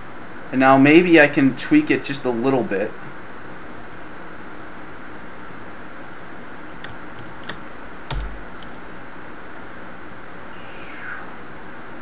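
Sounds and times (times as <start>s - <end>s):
steady background hiss: 0.0s - 12.0s
keyboard and mouse clicks: 6.6s - 8.9s.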